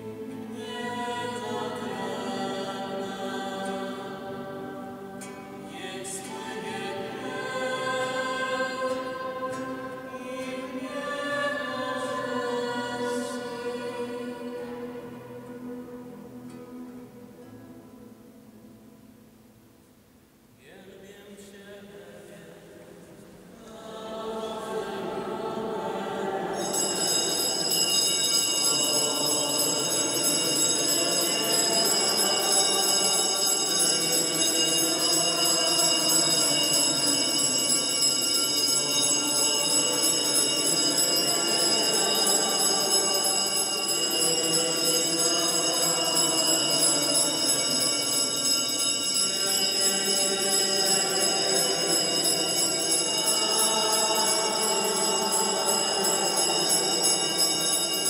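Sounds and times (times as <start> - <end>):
congregation singing a hymn: 0.0 - 17.8, 21.5 - 58.0
high ringing of altar bells: 26.6 - 58.0.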